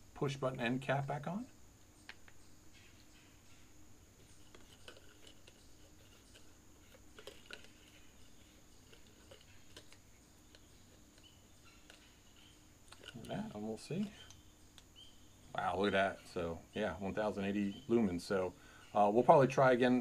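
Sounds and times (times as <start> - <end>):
flashlight cap clicks and scrapes: 4.4 - 12.2, 12.9 - 13.3.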